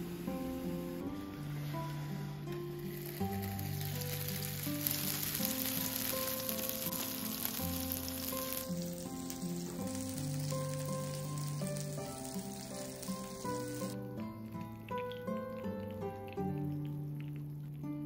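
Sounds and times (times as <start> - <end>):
soft music with plucked notes: 0.0 - 18.0
dumplings sizzling in oil: 2.8 - 16.6.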